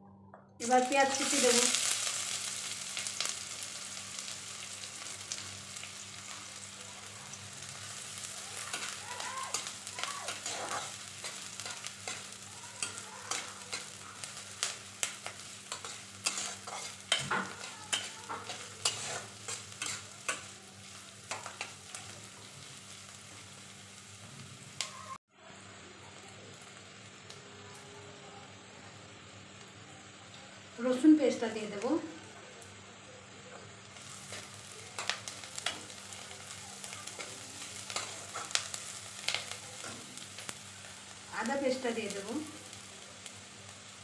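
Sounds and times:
onions sizzling in oil: 0:00.6 - 0:44.0
metal spatula scraping a pan: 0:08.6 - 0:20.5.

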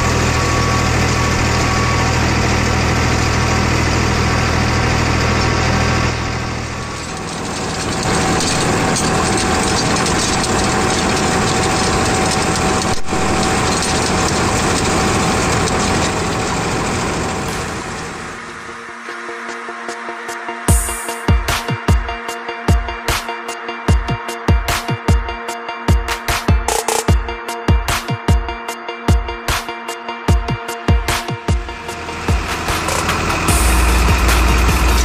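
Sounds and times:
tractor diesel engine running: 0:00.0 - 0:18.8, 0:31.5 - 0:35.0
rotavator blades churning soil: 0:06.9 - 0:17.5.

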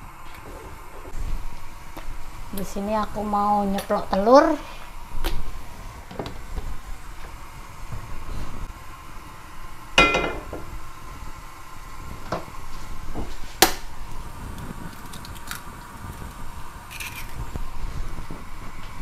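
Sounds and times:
cookware clinking on a hob: 0:10.0 - 0:10.6.

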